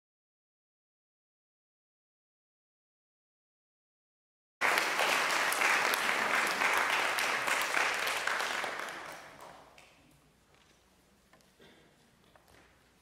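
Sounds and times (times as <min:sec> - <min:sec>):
audience applauding: 0:04.6 - 0:09.9.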